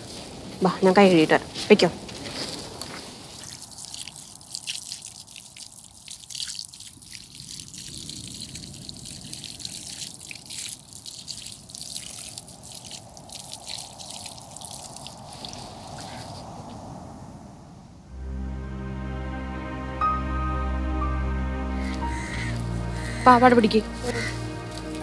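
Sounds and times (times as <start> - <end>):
water dripping: 2.6 - 16.2, 21.8 - 25.0
tap water running and splashing: 3.4 - 15.4.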